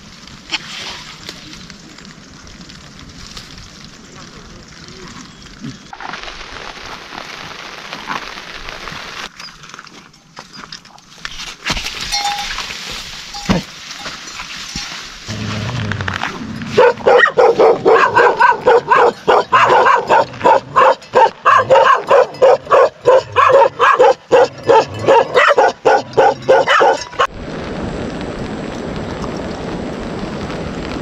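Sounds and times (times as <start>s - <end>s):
dog barking: 16.8s - 27.3s.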